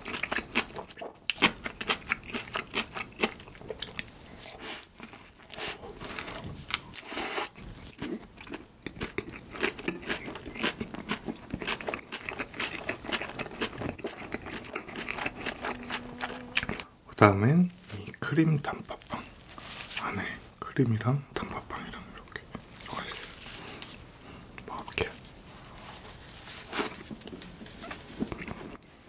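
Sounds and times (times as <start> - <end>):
chewing with mouth clicks: 0.0 - 7.1, 7.9 - 17.2.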